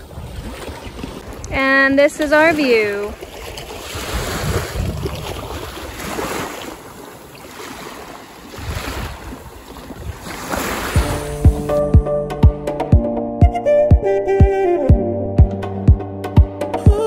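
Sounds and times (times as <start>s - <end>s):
wind gusting on microphone: 0.0s - 6.6s, 8.5s - 11.7s
small waves on sandy beach: 0.0s - 11.4s.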